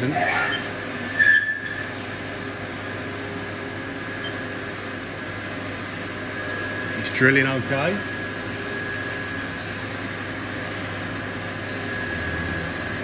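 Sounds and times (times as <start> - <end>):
drill cutting whistle: 0.3 - 5.4, 7.8 - 9.9, 11.6 - 13.0
mill spindle and coolant hiss: 1.8 - 13.0.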